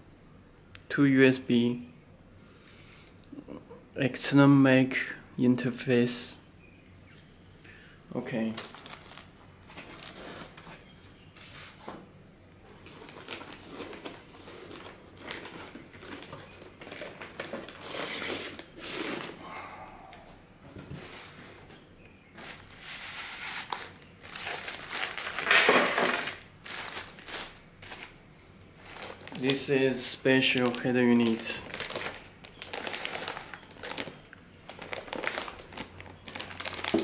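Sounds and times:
plastic bag crinkling: 8.4s - 10.9s, 12.7s - 19.4s, 22.3s - 37.0s
cardboard packaging handled: 8.5s - 11.8s, 12.6s - 19.4s, 20.8s - 28.1s, 28.8s - 29.7s, 30.4s - 37.0s.

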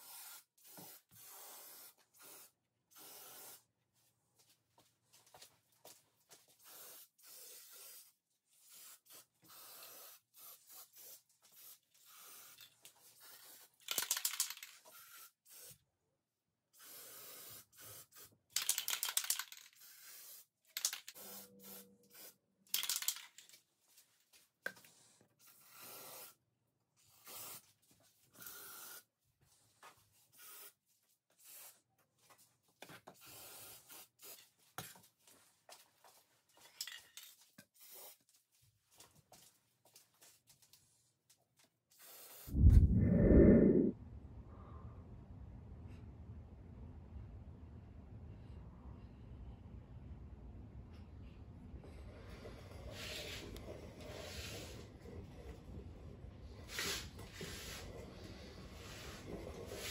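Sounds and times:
spray paint can hissing: 0.0s - 3.6s, 6.6s - 8.1s, 8.7s - 12.6s, 13.2s - 15.8s, 16.8s - 23.1s.

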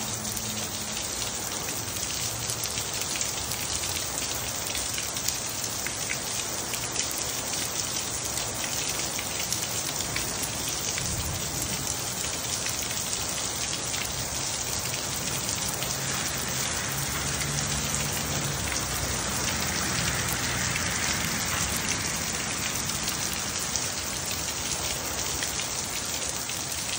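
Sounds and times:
heavy rain pouring: 0.0s - 26.9s.

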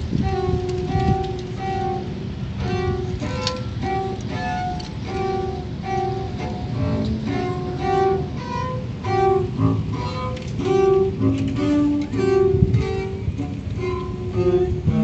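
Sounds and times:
bowed double bass: 0.0s - 15.0s
saxophone: 0.0s - 15.0s.

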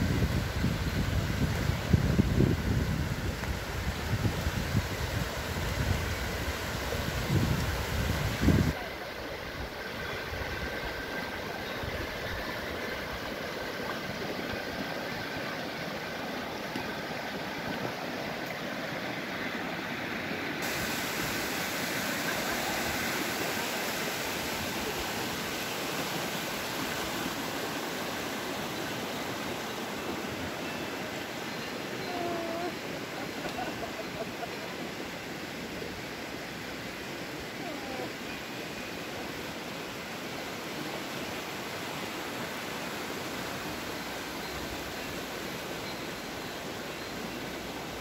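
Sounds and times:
wind buffet on microphone: 0.0s - 8.8s
river rushing over stones: 0.0s - 48.0s.

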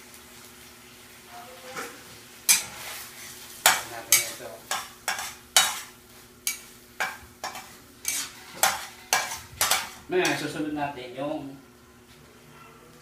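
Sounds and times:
food sizzling in a frying pan: 0.0s - 12.4s
utensil scraping a pan: 2.5s - 10.6s.

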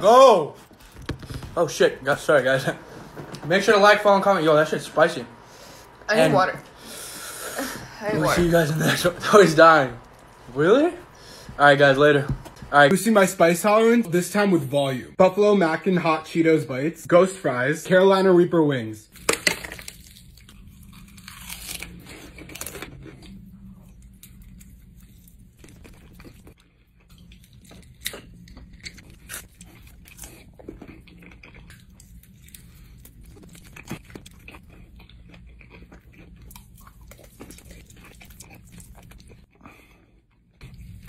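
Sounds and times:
low steady hum: 0.0s - 15.2s
crunchy food chewing: 19.9s - 41.0s.

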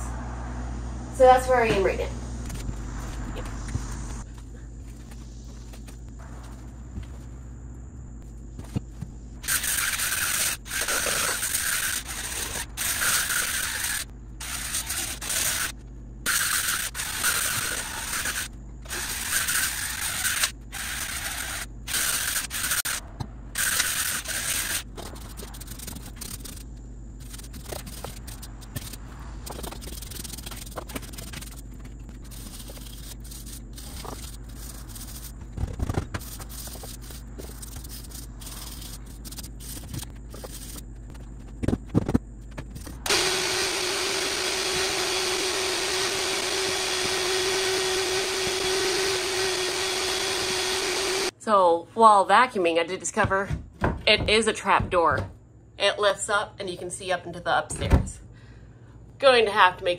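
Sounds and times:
brush scrubbing wood: 36.2s - 40.9s
knocks: 53.2s - 55.4s.

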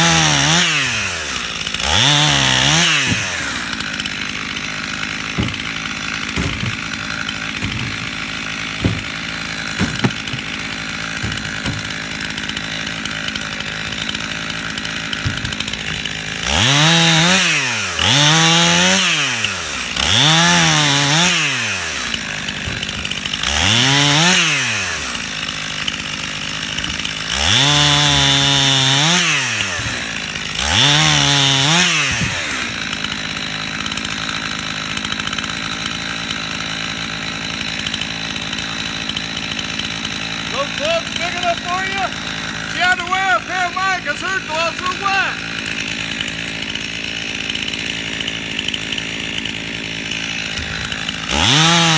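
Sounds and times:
chainsaw cutting wood: 0.0s - 51.9s
chainsaw idling and revving: 0.0s - 51.9s.

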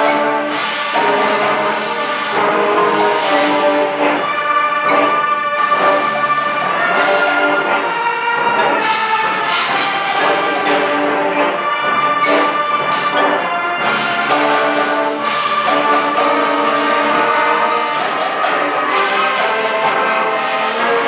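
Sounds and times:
cymbal crashes: 0.0s - 8.0s
concert band playing: 0.0s - 21.0s.

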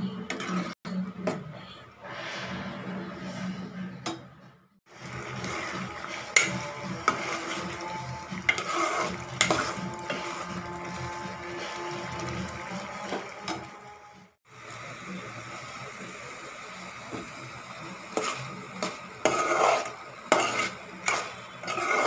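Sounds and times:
spoon scraping pot: 0.1s - 0.8s, 5.1s - 12.3s, 18.2s - 22.0s.

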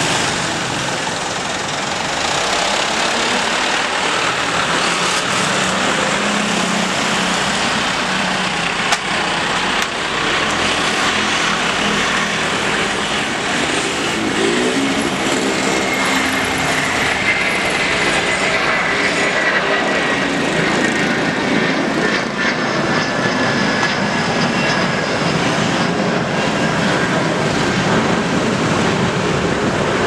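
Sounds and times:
jet engines roaring at takeoff: 0.0s - 30.0s.

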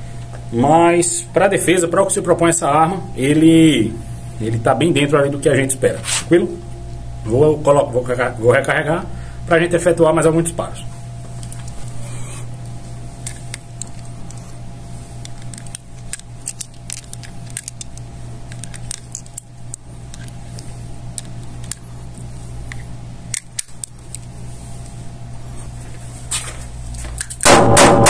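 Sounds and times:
metallic clicks of cartridges: 11.4s - 12.0s, 13.2s - 14.4s, 15.2s - 25.0s.

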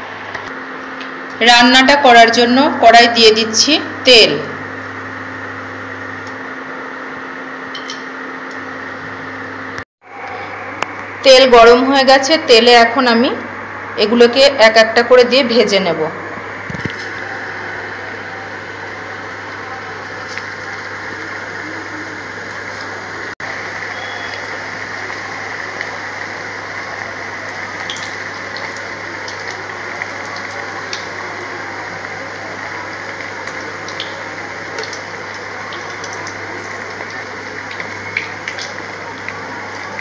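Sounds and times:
oil popping and crackling: 16.6s - 17.4s, 20.2s - 40.0s
food deep-frying in hot oil: 16.6s - 40.0s.

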